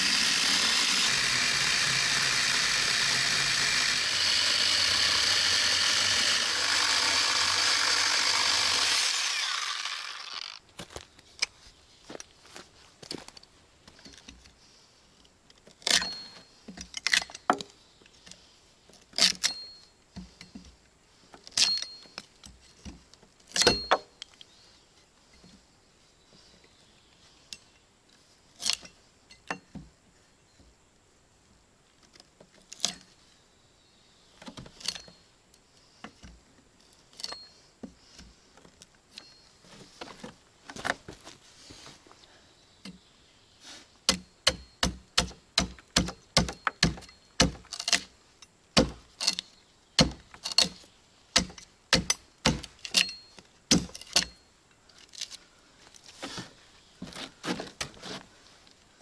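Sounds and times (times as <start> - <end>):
light metallic clinks: 52.8 - 53.4.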